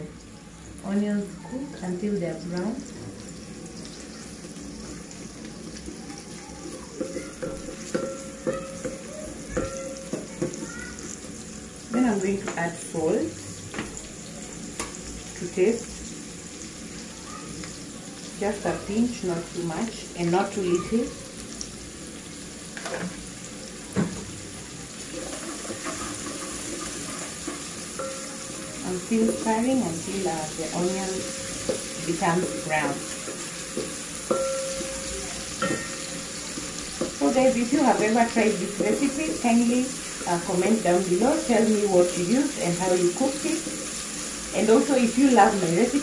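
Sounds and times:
onions sizzling in oil: 0:00.0 - 0:46.0
wooden spoon stirring: 0:06.7 - 0:11.2, 0:25.0 - 0:41.9
wooden spatula knocking metal pot: 0:07.0 - 0:10.6, 0:25.3 - 0:39.2.

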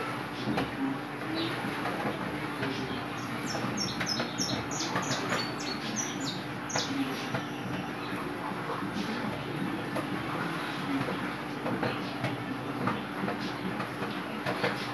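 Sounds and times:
bird chirping: 0:03.2 - 0:07.2.

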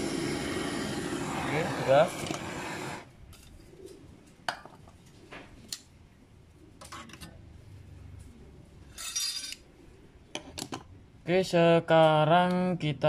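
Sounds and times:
metal tools clinking: 0:09.0 - 0:09.6.

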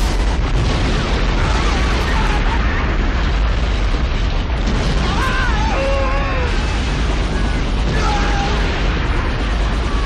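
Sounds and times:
deep rumble and rush: 0:00.0 - 0:10.0
people screaming: 0:04.9 - 0:10.0.

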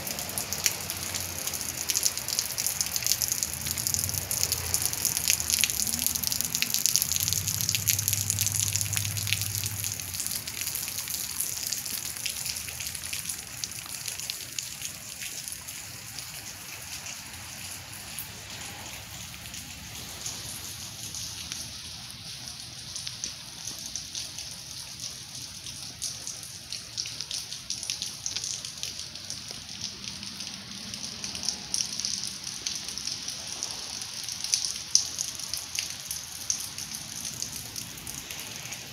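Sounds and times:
wet snow pattering on leaves: 0:00.0 - 0:24.4, 0:34.8 - 0:38.9.

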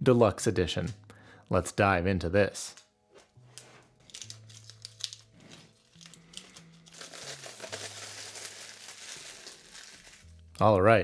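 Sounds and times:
quiet background music: 0:00.0 - 0:11.0
book pages rustling: 0:03.2 - 0:10.3.

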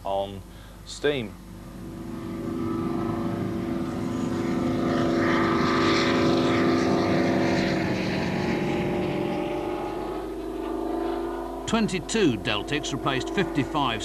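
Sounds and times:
diesel locomotive droning: 0:01.4 - 0:14.0.

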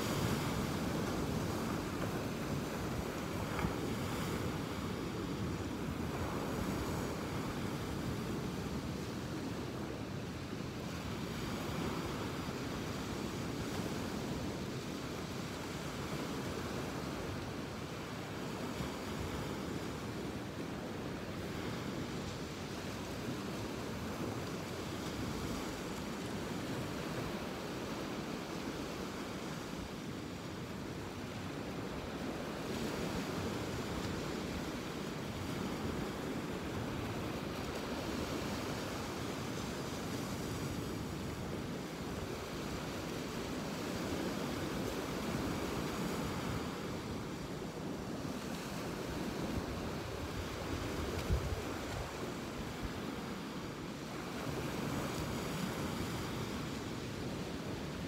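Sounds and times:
ocean waves washing on beach: 0:00.0 - 0:58.0
wind on microphone: 0:30.6 - 0:58.0.

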